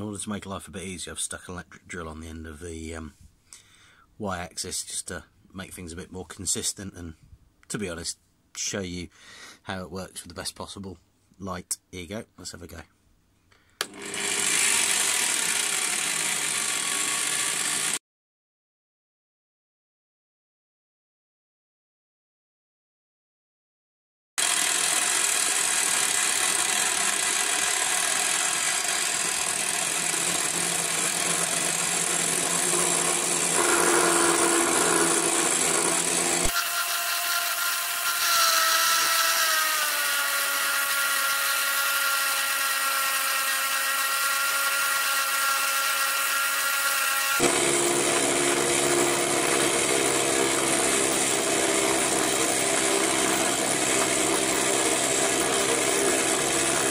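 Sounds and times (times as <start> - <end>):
end mill cutting aluminium: 13.8 - 18.0, 24.4 - 56.9
motor whine: 24.4 - 56.9.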